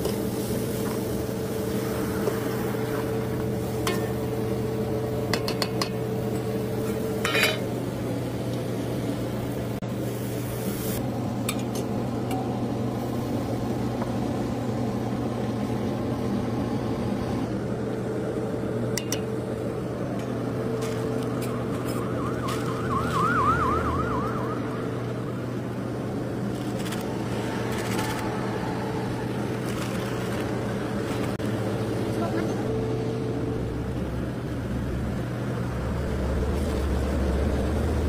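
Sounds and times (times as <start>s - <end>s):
steady background hum: 0.0s - 38.0s
metal clinks against steel bowl: 7.2s - 7.6s
warbling siren: 20.7s - 29.8s.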